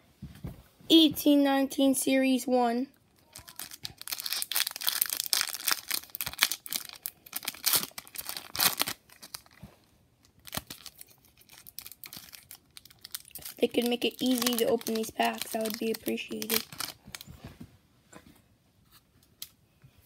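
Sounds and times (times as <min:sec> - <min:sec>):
foil wrapper tearing and crinkling: 0:03.3 - 0:09.6, 0:10.3 - 0:17.3.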